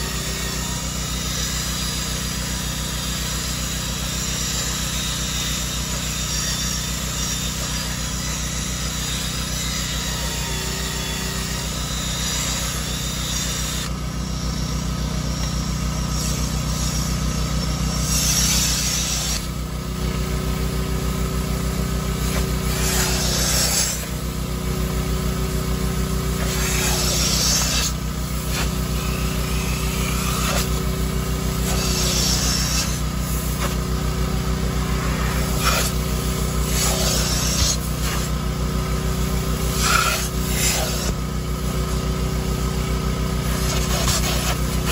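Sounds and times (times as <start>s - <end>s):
carpet extractor motor running: 0.0s - 44.9s
drill brush spinning on cloth seat: 9.5s - 44.9s
upholstery tool drawn across seat: 35.0s - 35.9s, 36.6s - 38.3s, 39.8s - 41.2s, 43.5s - 44.9s.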